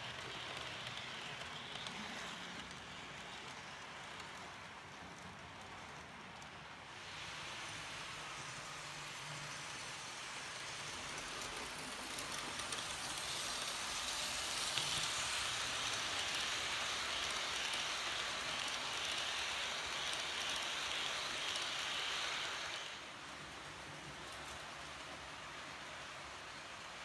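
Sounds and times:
model train wheels rattling: 0:00.0 - 0:27.0.

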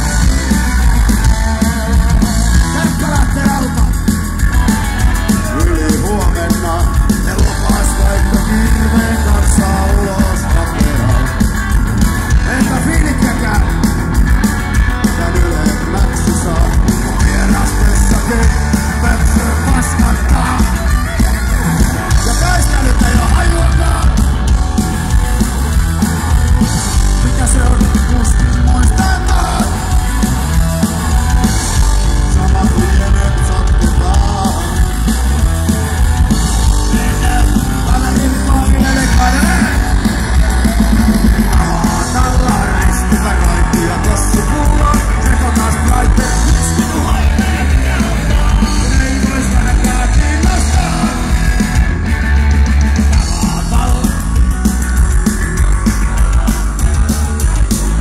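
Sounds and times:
singer yelling vocals: 0:00.0 - 0:04.0, 0:04.7 - 0:11.5, 0:12.3 - 0:13.9, 0:14.9 - 0:24.5, 0:27.0 - 0:30.3, 0:32.0 - 0:35.1, 0:36.6 - 0:51.8, 0:53.1 - 0:54.3
distorted electric guitar: 0:00.0 - 0:58.0
drums: 0:00.0 - 0:58.0.

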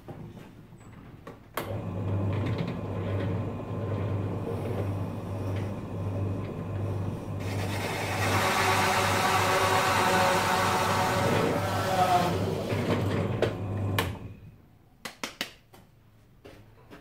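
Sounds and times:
drill press motor hum: 0:01.6 - 0:14.4
hole saw cutting wood: 0:07.4 - 0:12.7.

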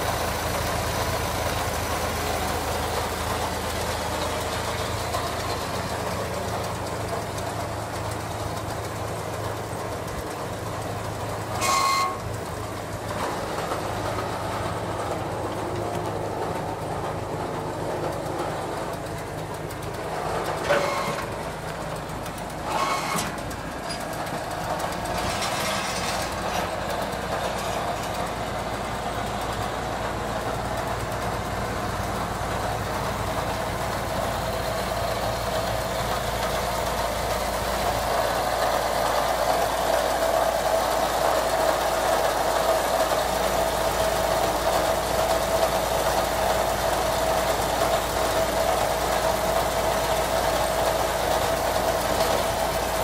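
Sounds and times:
engine running: 0:00.0 - 0:53.0
metal clanks: 0:22.6 - 0:28.4.

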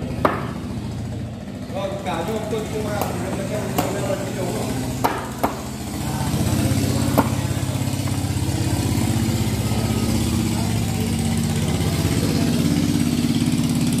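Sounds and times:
small motorcycle engine idling: 0:00.0 - 0:14.0
cleaver chopping fish: 0:00.2 - 0:00.7, 0:03.0 - 0:04.1, 0:05.0 - 0:05.8.

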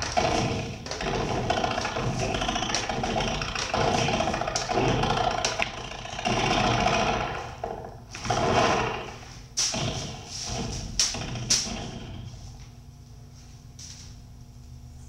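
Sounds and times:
harsh distorted electronic noise: 0:00.0 - 0:12.4.

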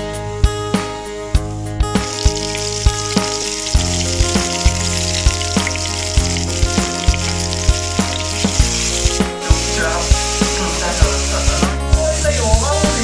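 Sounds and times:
background music with steady beat: 0:00.0 - 0:13.0
garlic and onion sizzling in oil: 0:02.0 - 0:13.0.

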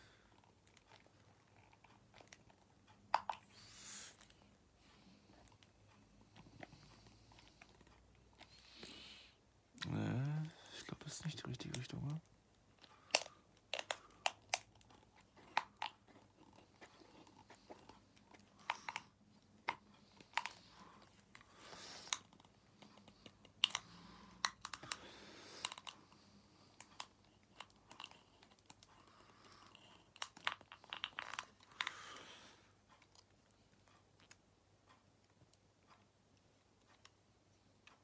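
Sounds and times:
small plastic clicks: 0:12.8 - 0:16.0.

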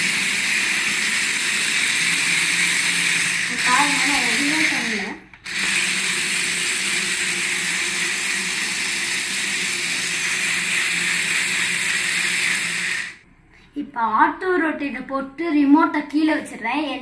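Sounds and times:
electric motors whirring: 0:00.0 - 0:13.2.

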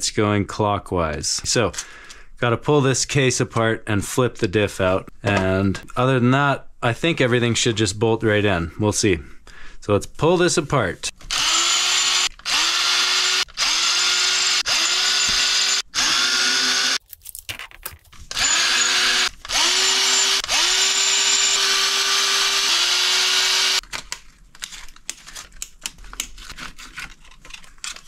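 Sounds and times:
electric screwdriver motor whine: 0:11.3 - 0:17.0, 0:18.3 - 0:23.8
clicks and rattles of parts: 0:17.0 - 0:18.4, 0:23.8 - 0:28.0.

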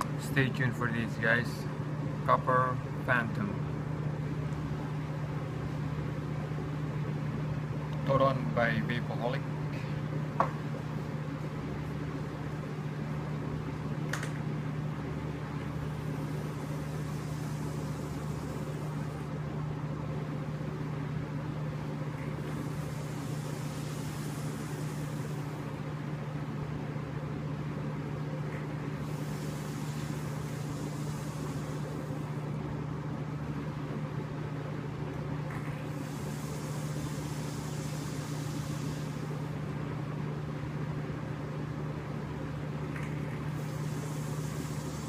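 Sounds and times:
low mechanical hum: 0:00.0 - 0:45.0
soft airy vapour hisses: 0:15.6 - 0:19.8, 0:21.8 - 0:26.2, 0:28.5 - 0:32.7, 0:35.5 - 0:39.7, 0:42.9 - 0:45.0.

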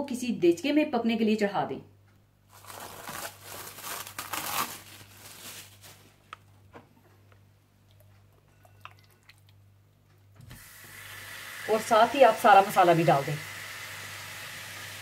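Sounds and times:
rustling and crinkling: 0:02.5 - 0:07.4.

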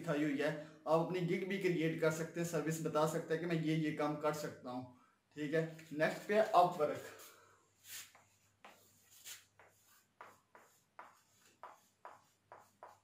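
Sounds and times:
marker squeaking on whiteboard: 0:07.9 - 0:13.0.

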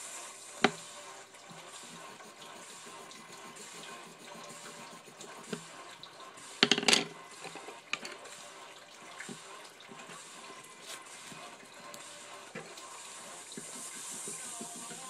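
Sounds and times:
pencil clattering on wooden table: 0:06.6 - 0:07.1.

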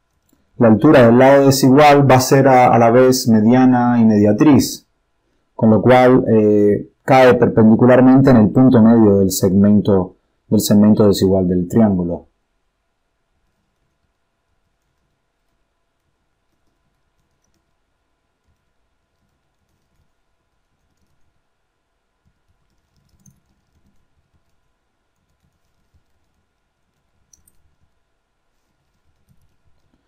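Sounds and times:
computer keyboard typing clicks: 0:22.4 - 0:24.6, 0:25.2 - 0:27.9, 0:28.8 - 0:30.0.

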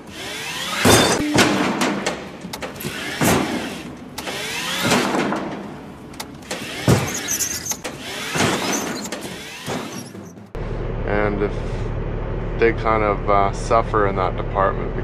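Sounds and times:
truck engine drone: 0:00.0 - 0:15.0
cart bumping walls: 0:00.8 - 0:10.6.

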